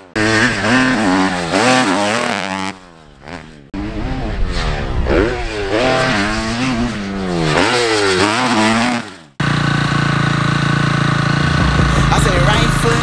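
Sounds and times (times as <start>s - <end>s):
motocross bike engine revving: 0.0s - 13.0s
steady engine drone: 9.3s - 13.0s.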